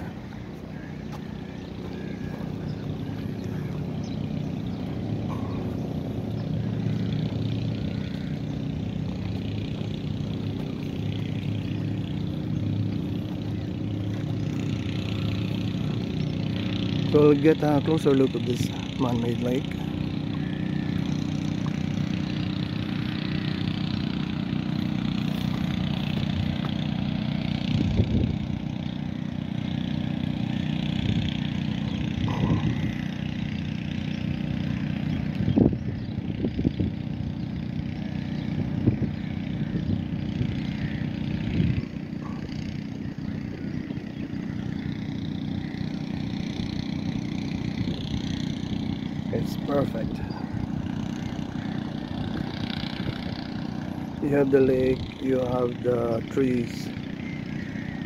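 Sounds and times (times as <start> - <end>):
low motor hum: 0.0 - 58.0.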